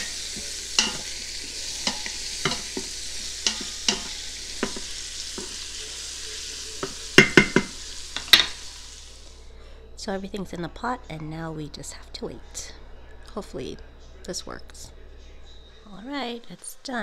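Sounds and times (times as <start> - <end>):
onions and bacon sizzling in a pot: 0.0 - 9.4.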